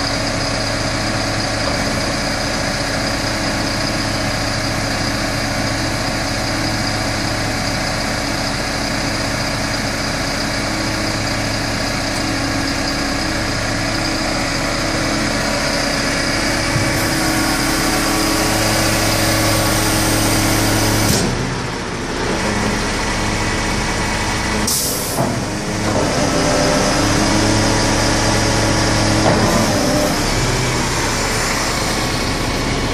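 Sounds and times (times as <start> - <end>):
diesel engine idling: 0.0 - 32.9.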